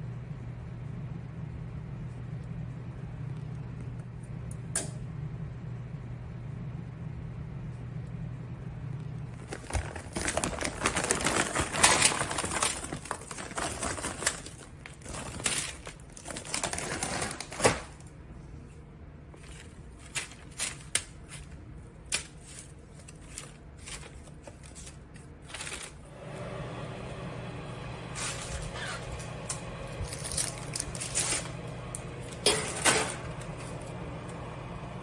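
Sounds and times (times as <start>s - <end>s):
steady low hum: 0.0s - 16.9s, 17.9s - 35.0s
paper crinkling: 9.1s - 18.1s, 18.7s - 26.1s, 28.1s - 34.0s
frozen food pieces clattering: 9.3s - 18.0s, 19.3s - 26.1s, 29.9s - 33.9s.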